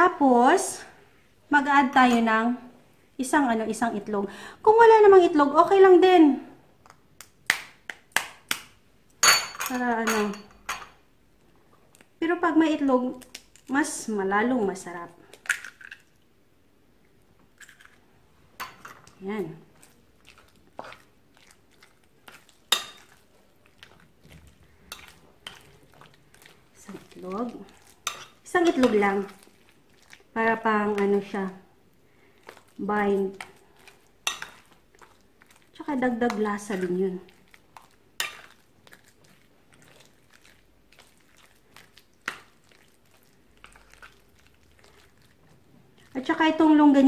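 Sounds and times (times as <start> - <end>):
wet squelching and scraping: 19.6 - 31.5, 32.2 - 46.4.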